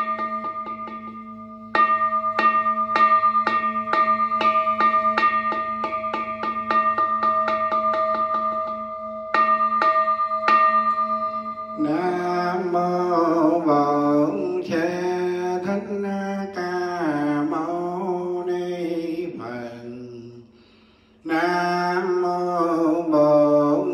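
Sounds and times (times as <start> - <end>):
bell struck and ringing: 0.0 - 15.4
man chanting: 11.8 - 20.5, 21.2 - 23.9.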